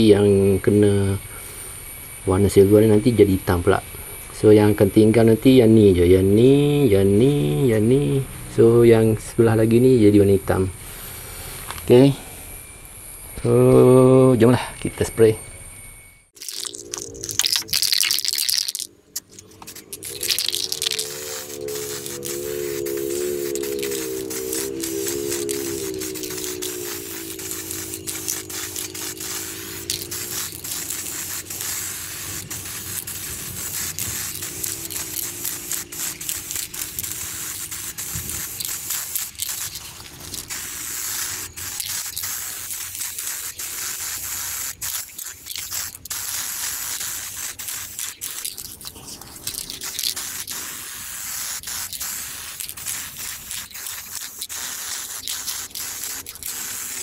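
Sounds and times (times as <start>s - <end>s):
aerosol paint can spraying: 16.4s - 57.0s.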